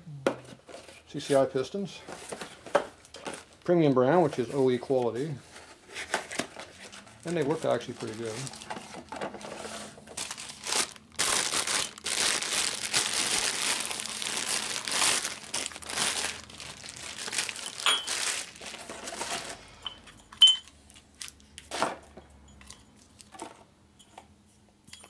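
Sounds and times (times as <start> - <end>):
plastic bag crinkling: 6.7 - 19.8.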